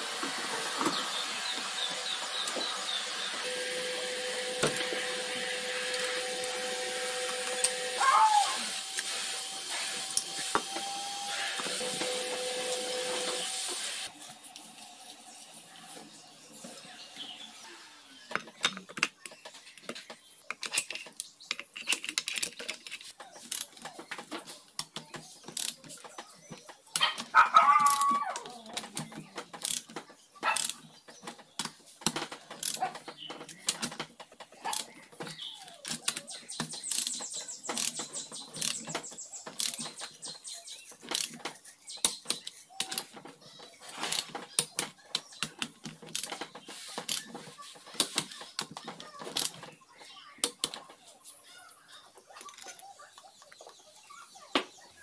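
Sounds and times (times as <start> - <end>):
loud pitched cry: 7.9 - 8.8.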